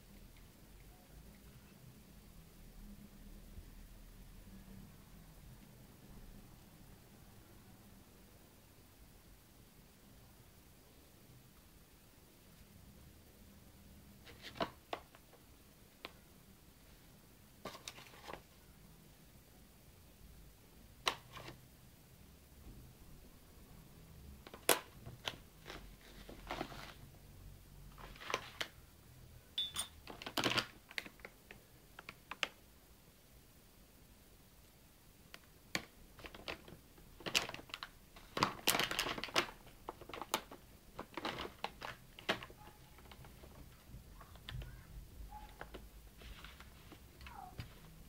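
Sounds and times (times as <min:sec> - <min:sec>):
teaspoon clinking against ceramic cup: 0:29.6 - 0:30.0
plastic bag crinkling: 0:30.0 - 0:31.4, 0:36.2 - 0:43.8.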